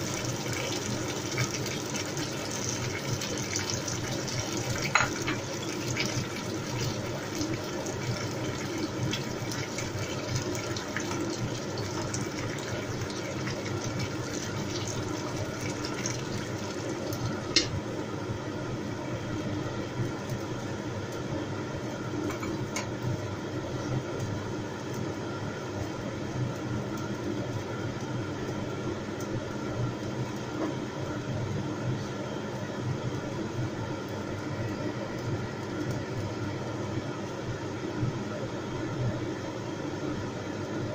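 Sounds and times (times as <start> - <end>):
sauce bubbling in a pot: 0.0 - 18.0
gas flame hissing: 0.0 - 18.1.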